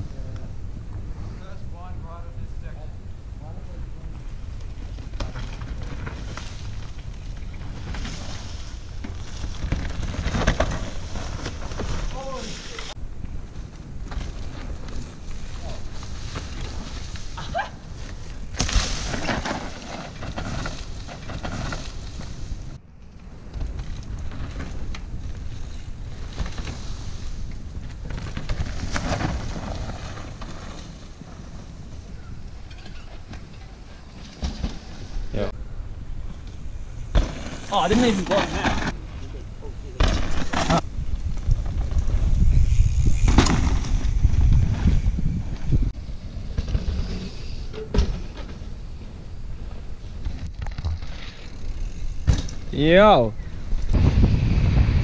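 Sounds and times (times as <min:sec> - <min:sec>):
bikes clicking and rattling: 0:00.0 - 0:54.7
wind buffeting microphone: 0:40.7 - 0:46.3, 0:53.3 - 0:55.0.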